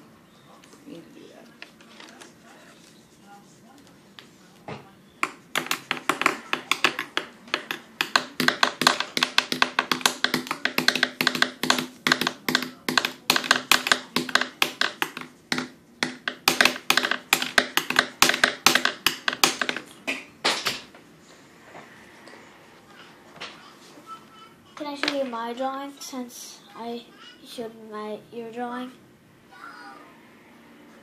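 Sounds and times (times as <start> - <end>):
drawing tool tapping on paper: 5.2 - 19.8.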